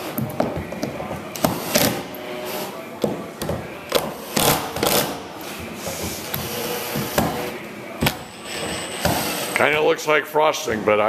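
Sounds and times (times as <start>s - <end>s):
power drivers driving screws: 3.9s - 5.2s.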